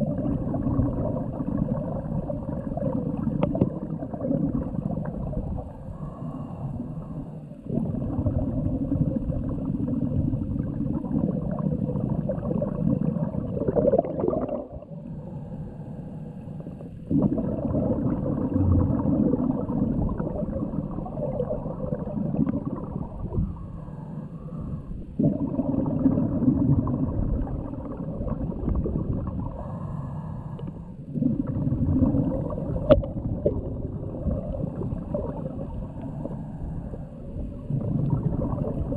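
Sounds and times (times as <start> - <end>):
bubbles gurgling underwater: 0.0 - 6.2, 7.0 - 15.1, 16.7 - 23.6, 24.6 - 29.9, 31.1 - 38.9
diver breathing through regulator: 5.8 - 7.6, 15.0 - 17.1, 23.2 - 25.4, 29.4 - 31.3, 35.8 - 37.4.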